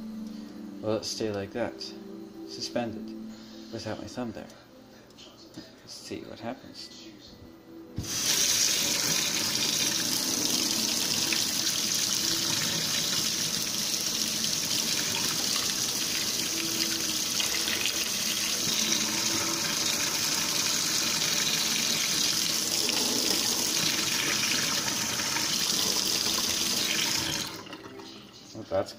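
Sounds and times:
faucet turning on: 8.0 - 28.3.

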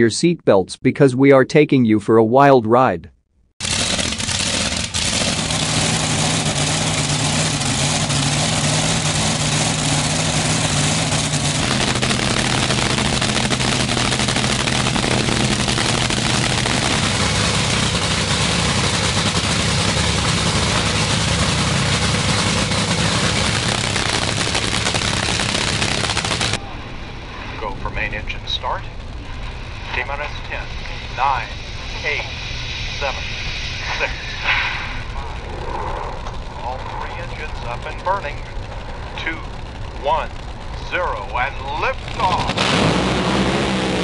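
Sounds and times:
drag boat engine running loudly: 3.6 - 26.6, 35.0 - 44.0.

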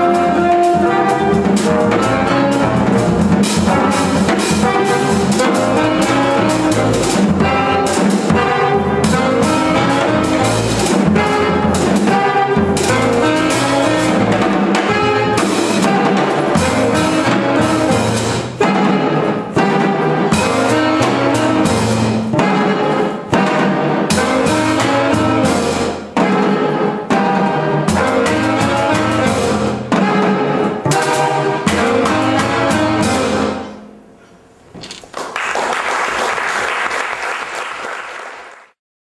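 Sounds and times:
small jazz band playing: 0.0 - 37.5
audience applause: 35.1 - 38.8.

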